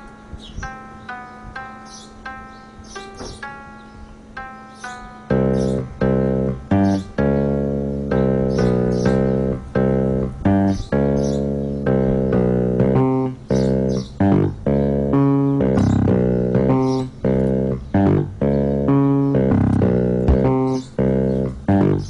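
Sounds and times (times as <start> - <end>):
plucked guitar and bass music: 5.3 - 22.0.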